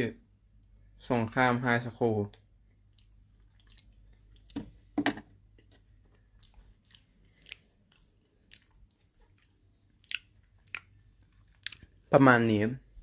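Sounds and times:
chewing crunchy food: 2.9s - 4.7s, 5.8s - 12.0s.

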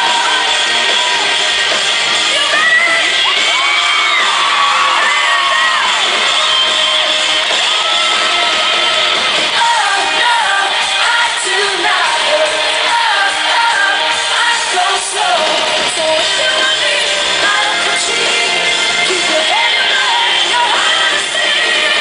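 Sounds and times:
live rock band playing: 0.0s - 22.0s
woman singing live: 9.6s - 22.0s.

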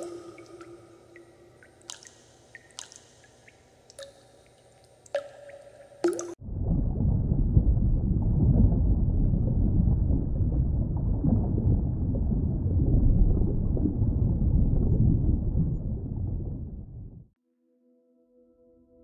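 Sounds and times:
deep muffled rumbling: 6.4s - 17.3s.

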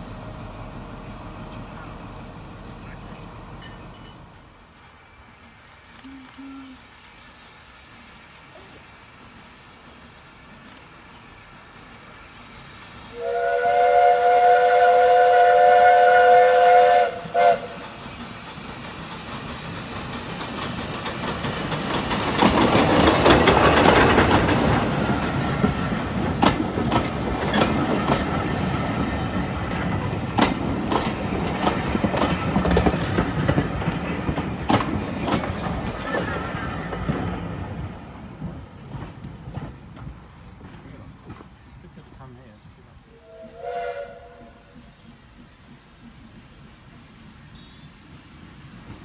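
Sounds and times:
steam locomotive passing: 0.0s - 49.0s
steam locomotive whistle: 13.1s - 17.9s, 43.1s - 44.9s
wheels clicking over rail joints: 17.7s - 41.6s.

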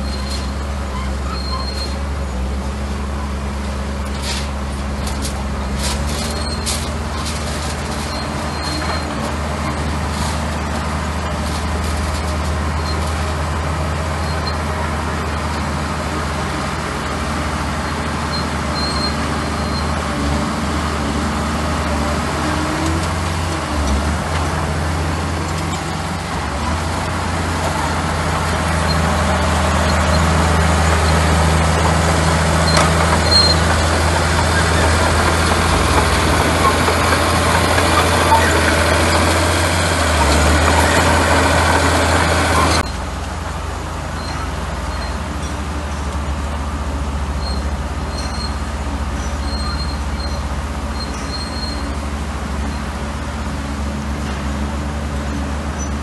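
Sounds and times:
soil and gravel being pushed: 0.0s - 43.0s
bulldozer diesel engine running: 0.0s - 56.0s.

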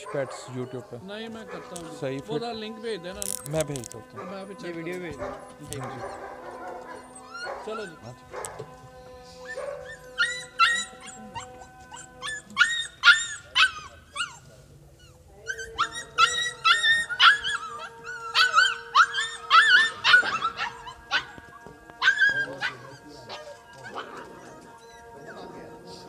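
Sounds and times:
puppies whining and yipping: 5.8s - 8.1s, 9.1s - 26.0s.

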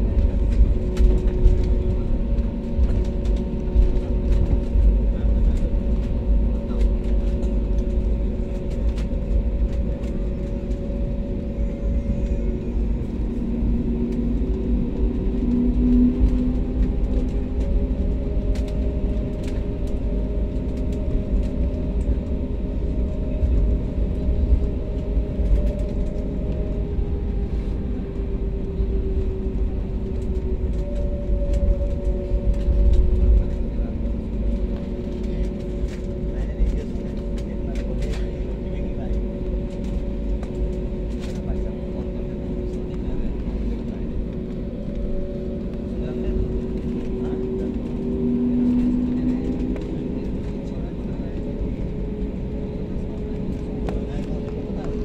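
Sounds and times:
jet engines humming: 0.0s - 55.0s
low rumble of wheels: 0.0s - 55.0s.

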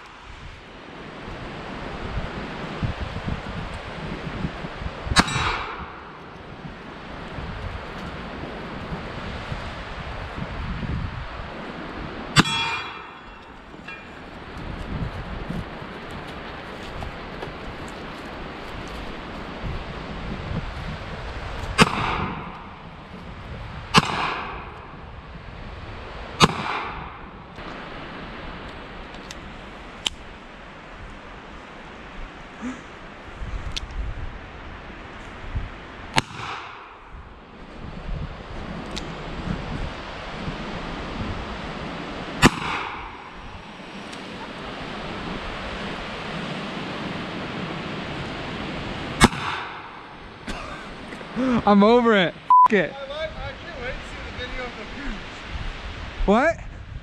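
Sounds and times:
revolver shots with echo: 21.8s - 22.8s, 24.0s - 24.9s, 26.4s - 27.2s, 42.4s - 43.4s, 49.2s - 50.0s.

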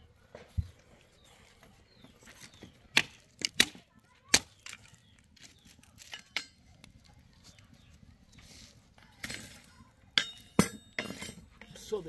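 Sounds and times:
pots and utensils clinking: 6.0s - 6.8s, 9.2s - 12.0s.

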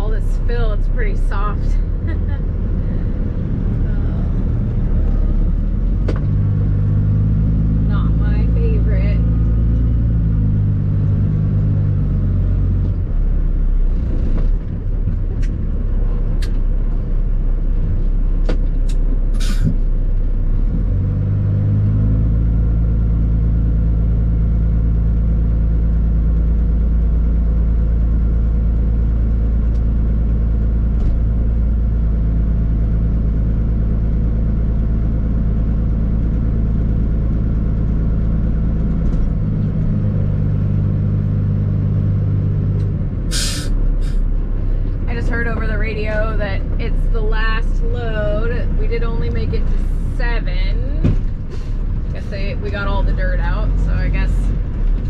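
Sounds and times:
truck diesel engine revving: 0.0s - 55.0s
short air hisses: 19.4s - 19.8s, 43.3s - 44.2s.

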